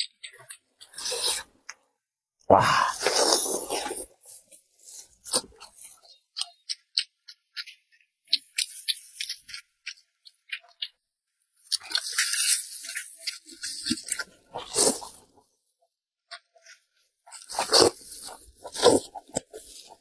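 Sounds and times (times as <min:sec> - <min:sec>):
wet chewing smacks: 0:05.2 - 0:11.0, 0:11.7 - 0:15.3.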